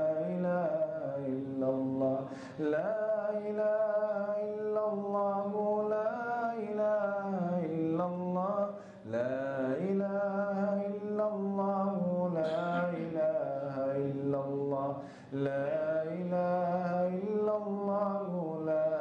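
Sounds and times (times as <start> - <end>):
man chanting into microphone: 0.0 - 19.0
breath: 2.3 - 2.6, 8.7 - 9.1, 15.0 - 15.4.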